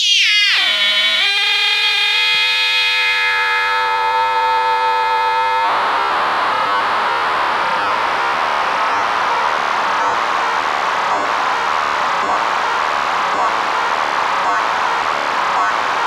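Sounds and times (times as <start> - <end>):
steady tone with overtones: 0.1 - 16.0
dense static-like noise: 3.3 - 16.0.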